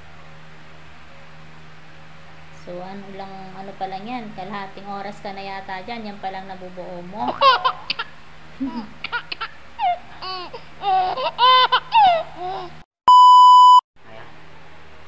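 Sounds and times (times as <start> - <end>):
high-pitched giggling: 7.3 - 12.8
electronic beep: 13.1 - 13.8.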